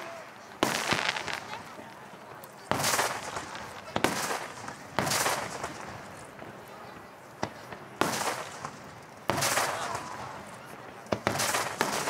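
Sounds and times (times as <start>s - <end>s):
firework shells booming: 0.6s - 1.7s, 2.7s - 6.1s, 11.1s - 12.0s.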